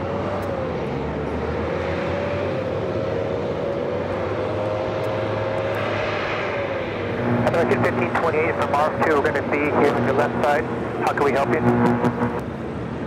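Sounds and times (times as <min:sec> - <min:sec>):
jet engine whine: 0:05.0 - 0:13.0.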